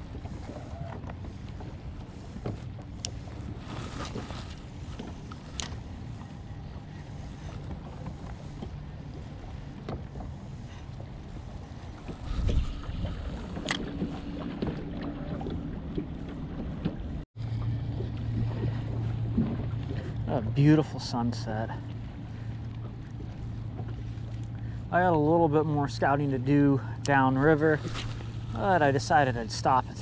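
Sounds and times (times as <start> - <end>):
low steady hum: 0.0 - 30.0
waves lapping against boat: 0.0 - 30.0
wind on microphone: 11.9 - 15.7.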